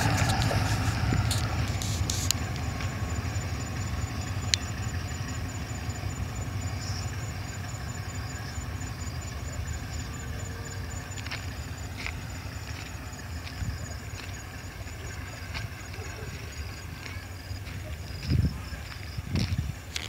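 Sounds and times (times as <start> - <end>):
diesel locomotive engine running: 0.0 - 20.0.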